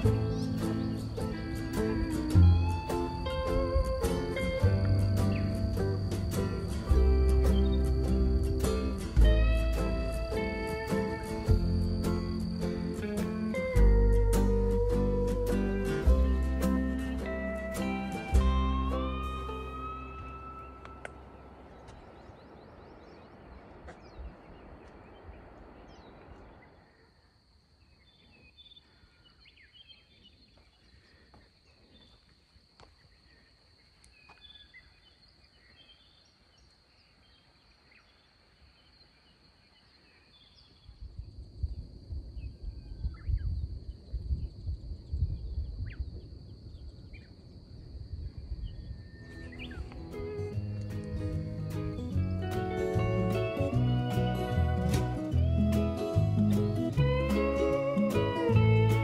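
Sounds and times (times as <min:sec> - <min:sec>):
wind buffeting microphone: 0:00.0 - 0:27.0, 0:40.6 - 0:59.0
bird chirps: 0:00.0 - 0:27.1, 0:48.6 - 0:52.2
wind: 0:00.0 - 0:59.0.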